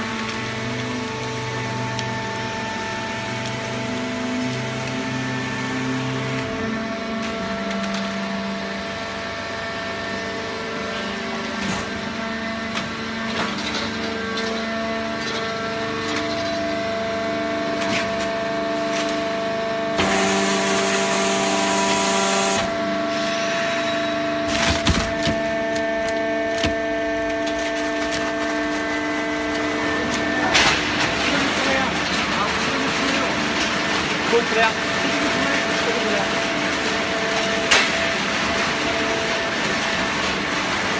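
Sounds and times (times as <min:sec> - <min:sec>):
baler machine hum: 0:00.0 - 0:40.9.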